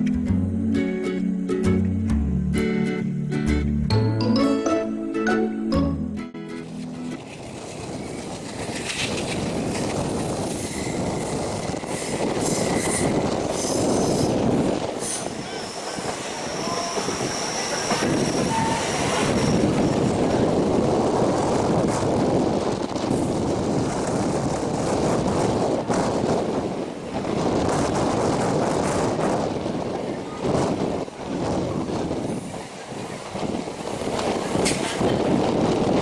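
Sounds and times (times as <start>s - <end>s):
train wheels rumbling on rails: 6.6s - 36.0s
high wheel squeal: 10.4s - 20.2s.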